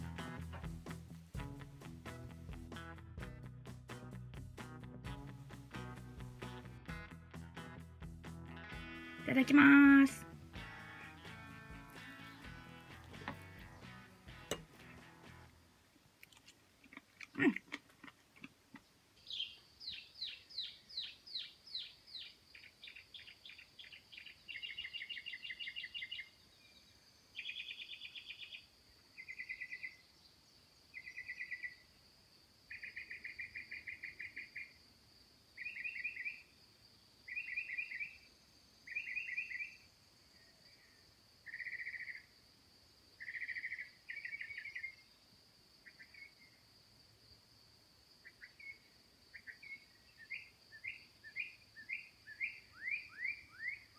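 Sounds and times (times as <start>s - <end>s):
short trilled calls: 43.2s - 45.0s, 48.3s - 53.9s.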